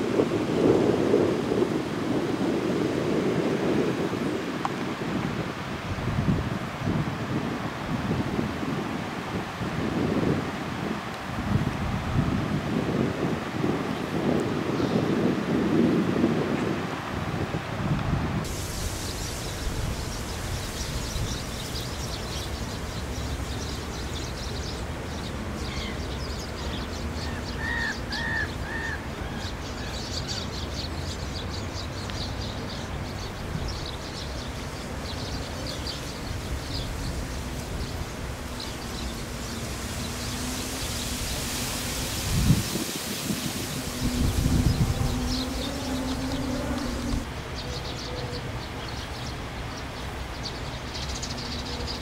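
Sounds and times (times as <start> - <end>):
small birds chirping: 18.6 - 52.0.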